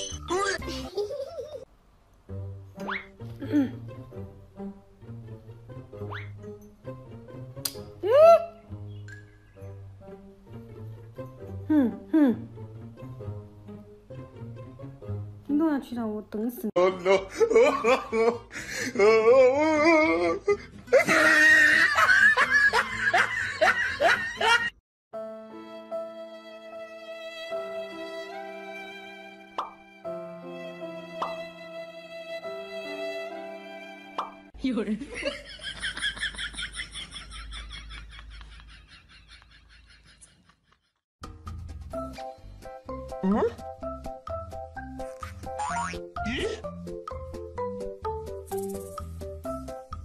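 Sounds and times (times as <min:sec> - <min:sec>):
soft music with held notes: 0:02.1 - 0:15.8, 0:25.2 - 0:34.6, 0:41.4 - 0:50.0
person laughing hard: 0:16.8 - 0:24.7, 0:45.7 - 0:46.6.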